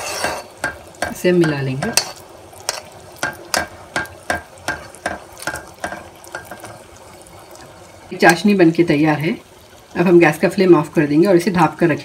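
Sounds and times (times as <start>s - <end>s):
ladle scraping a steel pan: 0.0s - 0.7s
syrup bubbling: 0.5s - 11.1s.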